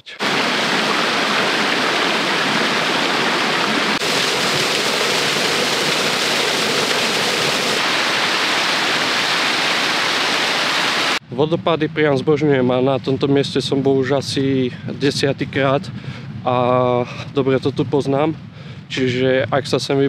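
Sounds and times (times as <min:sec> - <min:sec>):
rocky stream running: 0:00.2 - 0:11.2
small waterfall rushing: 0:00.2 - 0:11.2.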